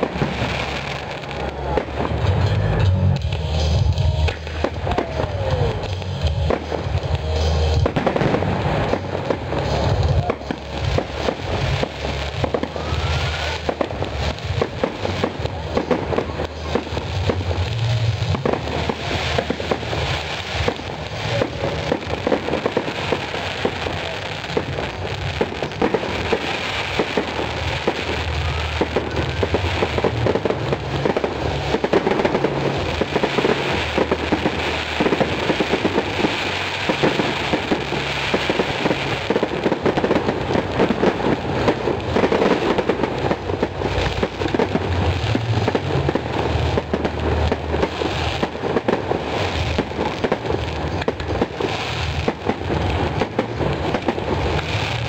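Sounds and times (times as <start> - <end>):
low rumble: 0.0 - 22.3
fireworks crackling and banging: 0.0 - 55.0.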